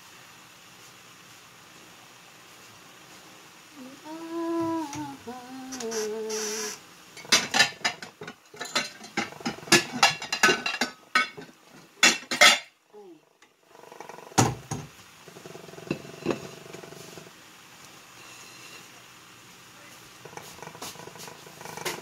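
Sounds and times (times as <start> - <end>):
dishes and cutlery clattering: 7.2 - 12.7.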